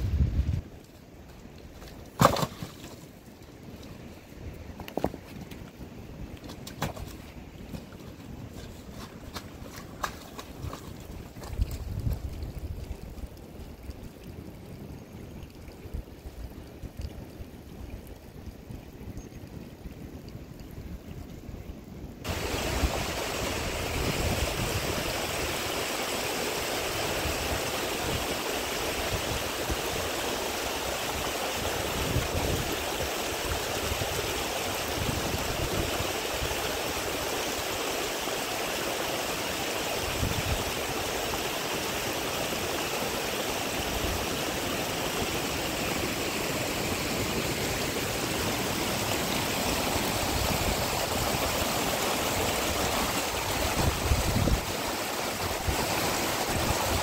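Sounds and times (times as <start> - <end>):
rush of flowing water: 0.0 - 57.0.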